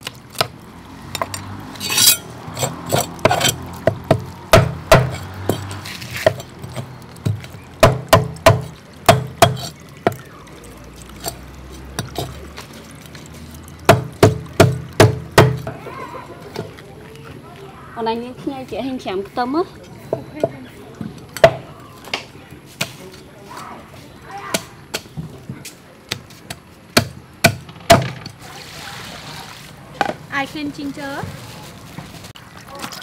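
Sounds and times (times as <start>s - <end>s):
knife scraping fish scales: 1.8s - 3.6s
knocks on wooden board: 7.3s - 9.6s, 13.9s - 15.7s.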